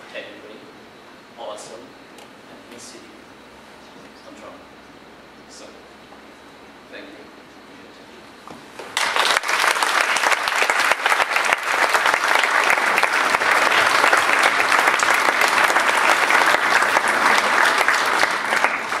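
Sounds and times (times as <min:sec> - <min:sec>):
audience applauding: 0:08.9 - 0:19.0.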